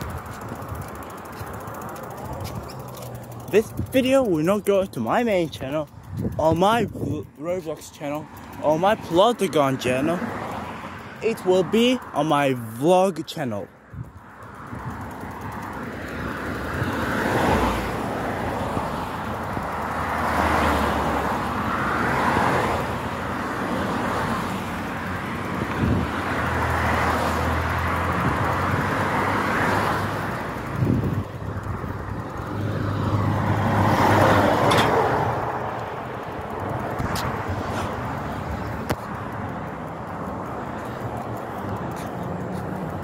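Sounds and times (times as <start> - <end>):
wind and road noise: 0.0 - 43.0
sharp clicks: 25.0 - 43.0.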